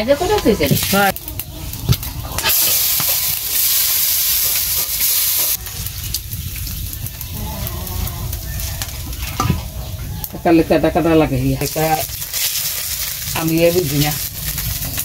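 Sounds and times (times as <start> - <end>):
metal spoon scraping pan: 0.0 - 5.9
food sizzling in metal pan: 0.0 - 15.0.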